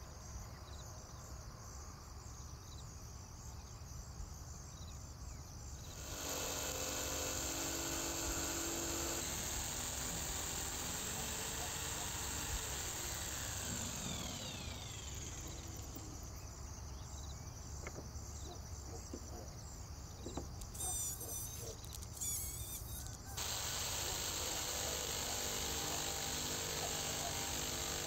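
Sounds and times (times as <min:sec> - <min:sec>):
jigsaw cutting wood: 0:05.9 - 0:16.1, 0:23.4 - 0:28.0.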